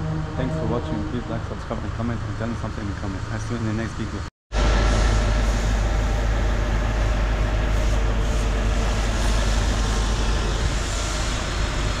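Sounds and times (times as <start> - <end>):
low rumble: 0.0 - 3.3
hiss: 4.8 - 12.0.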